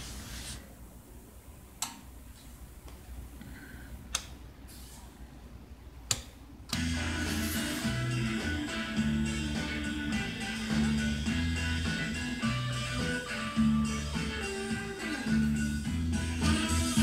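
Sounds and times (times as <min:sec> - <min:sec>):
music through a receiver: 0:06.7 - 0:17.0.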